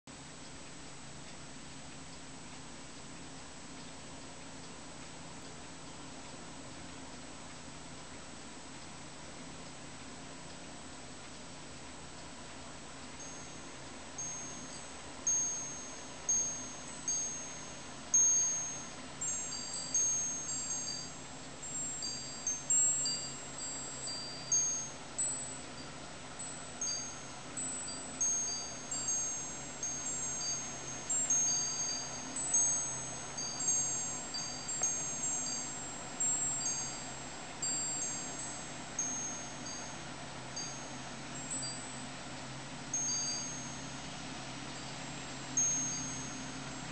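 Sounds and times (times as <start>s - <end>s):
wind chimes jingling: 14.2s - 40.0s, 40.6s - 42.1s, 42.9s - 44.0s, 44.7s - 46.9s.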